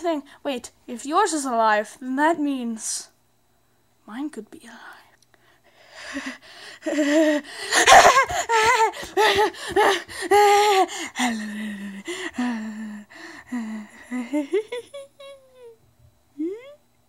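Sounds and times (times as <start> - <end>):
child gasping and crying out: 6.0 - 12.6
child humming: 6.1 - 15.8, 16.4 - 16.8.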